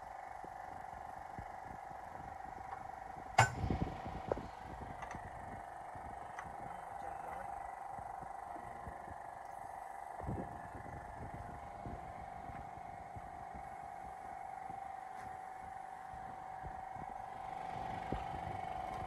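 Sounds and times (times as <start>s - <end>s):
steady hum: 0.0s - 19.0s
sharp clink: 3.4s - 3.8s.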